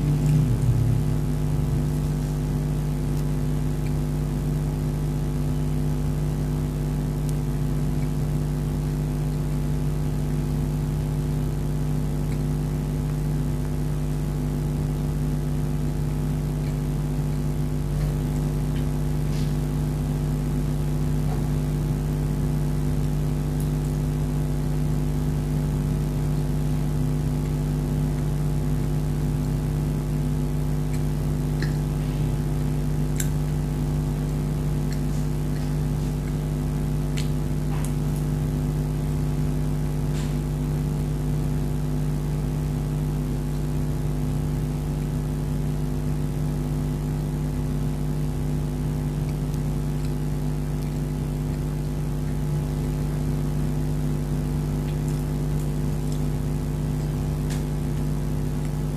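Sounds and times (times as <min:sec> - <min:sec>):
steady electrical hum: 0:00.0 - 0:58.9.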